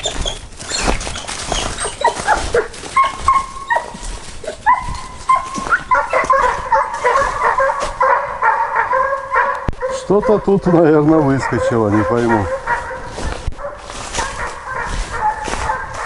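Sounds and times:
footsteps on slushy ice: 0.0s - 8.2s, 11.8s - 16.0s
hounds baying: 0.0s - 16.0s.

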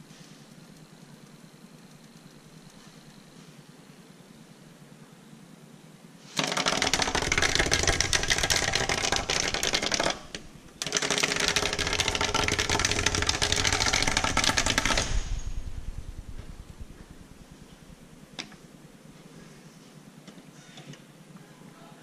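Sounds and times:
motorized drawing tool clattering: 6.3s - 17.7s.

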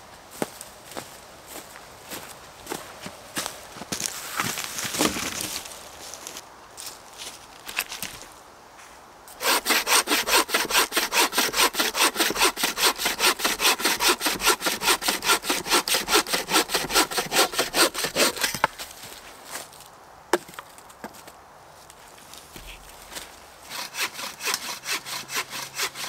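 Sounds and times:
hand saw cutting wood: 9.4s - 18.7s, 23.6s - 26.0s.

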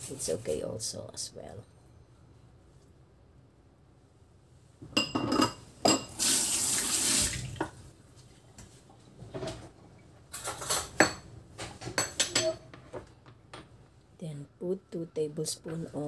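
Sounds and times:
kitchen tap running: 6.0s - 7.8s
metal kitchen utensils clattering: 10.3s - 12.8s
metal spoon clinking on dishes: 12.0s - 12.7s.

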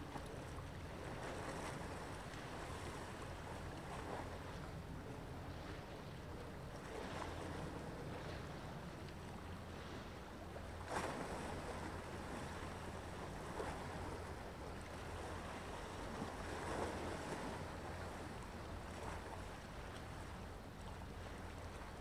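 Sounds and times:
low rumble of wind and sea: 0.0s - 22.0s
small waves washing ashore: 0.0s - 22.0s.

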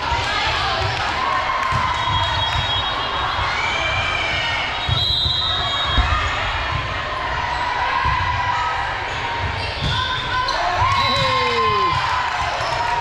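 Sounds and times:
crowd voices: 0.0s - 13.0s.

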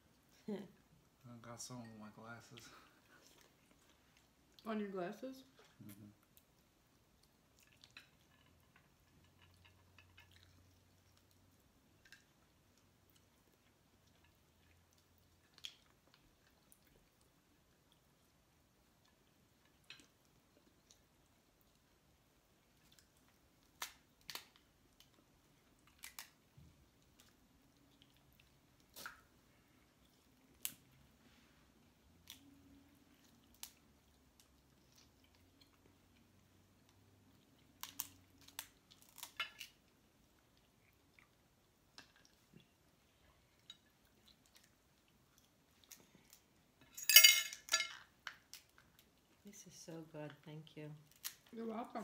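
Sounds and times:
chewing: 2.5s - 4.7s, 5.5s - 46.9s, 48.0s - 49.4s
crab shells cracking: 22.9s - 25.1s, 25.8s - 26.4s, 37.6s - 39.8s, 47.5s - 49.2s, 51.0s - 51.5s.

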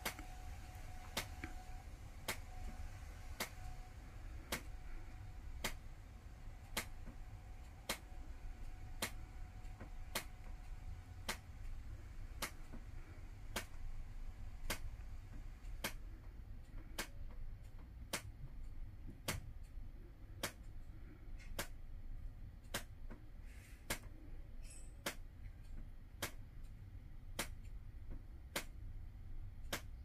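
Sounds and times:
steady low hum: 0.0s - 30.0s
sharp ticks: 4.4s - 21.9s.

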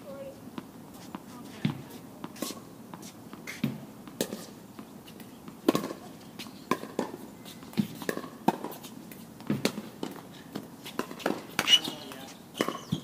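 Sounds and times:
tennis balls hit with rackets: 0.6s - 13.0s
balls bouncing on court: 5.5s - 6.1s, 6.7s - 8.8s, 9.4s - 10.2s, 11.0s - 13.0s.

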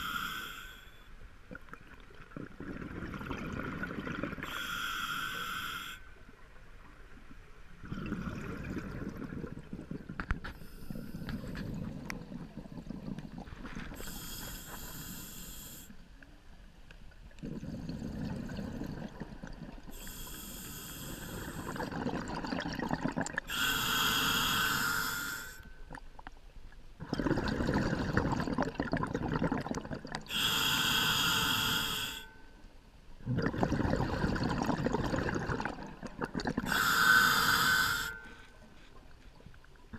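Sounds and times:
bubbles burbling on exhalation: 1.5s - 4.4s, 7.8s - 10.5s, 11.2s - 14.0s, 17.4s - 19.9s, 21.3s - 23.5s, 27.0s - 30.3s, 33.2s - 36.8s
regulator inhalation hiss: 4.5s - 6.1s, 14.0s - 16.0s, 19.9s - 21.8s, 23.5s - 25.7s, 30.3s - 32.4s, 36.7s - 38.4s.

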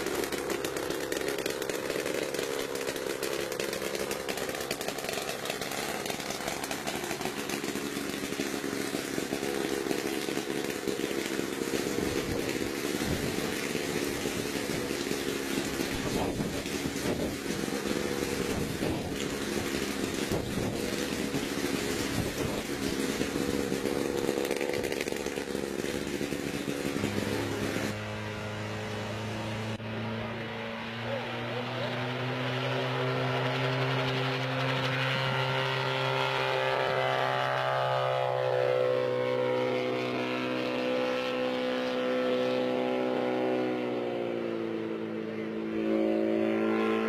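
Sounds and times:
rough mechanical rumble: 0.0s - 31.2s
helicopter engine running: 0.0s - 47.0s.

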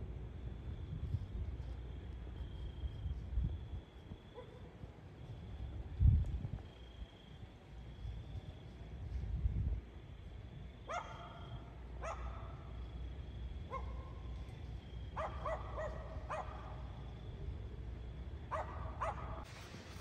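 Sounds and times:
dog barking: 4.3s - 4.8s, 10.9s - 12.8s, 13.7s - 14.2s, 15.2s - 16.9s, 18.5s - 19.5s.

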